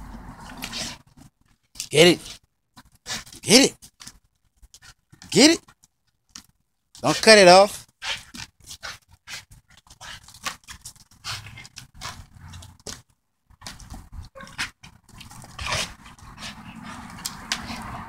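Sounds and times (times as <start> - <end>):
dog breathing hard: 0.2 - 1.1, 8.0 - 12.7, 14.6 - 18.0.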